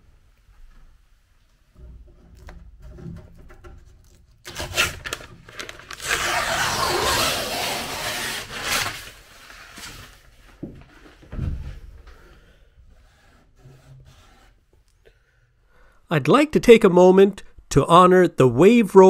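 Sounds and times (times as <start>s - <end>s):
tape ripping off wood: 4.0s - 9.2s.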